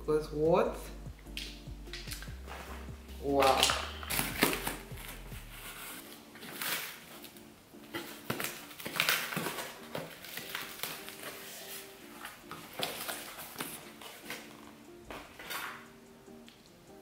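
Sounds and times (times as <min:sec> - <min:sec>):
knife slitting packing tape: 0:03.4 - 0:07.3, 0:07.9 - 0:11.8.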